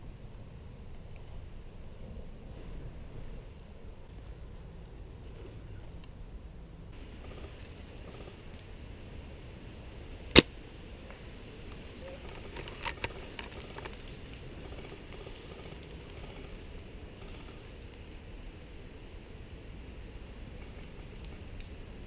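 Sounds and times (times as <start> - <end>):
quiet clicks: 11.1 - 18.2, 20.6 - 21.8.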